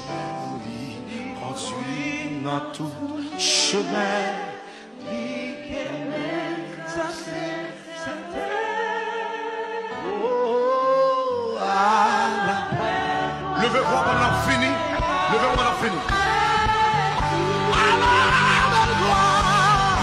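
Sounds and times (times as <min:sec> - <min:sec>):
man singing lead: 0:00.0 - 0:08.5, 0:09.9 - 0:20.0
musical accompaniment: 0:00.0 - 0:20.0
backing singers: 0:11.3 - 0:20.0.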